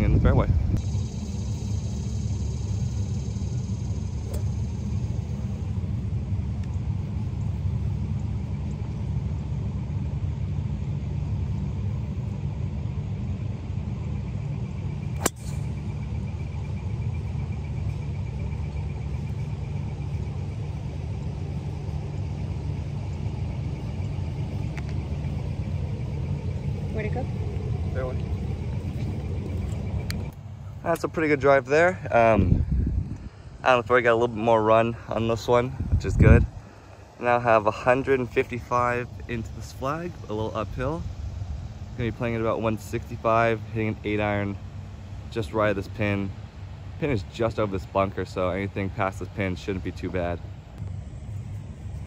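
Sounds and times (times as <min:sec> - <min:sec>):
low rumble: 0:00.0 - 0:42.6, 0:50.4 - 0:52.0
golf ball struck crack: 0:15.2 - 0:15.8.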